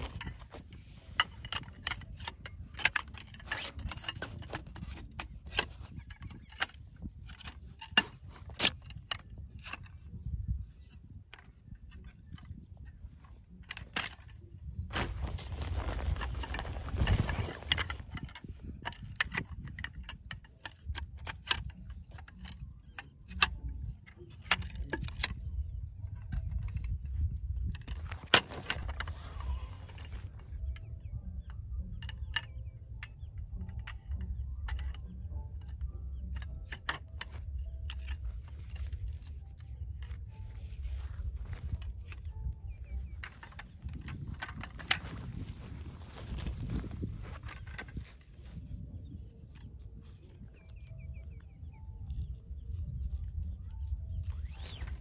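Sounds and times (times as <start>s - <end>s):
rustling: 13.0s - 19.7s, 36.6s - 48.7s
light metallic clinks: 15.6s - 55.0s.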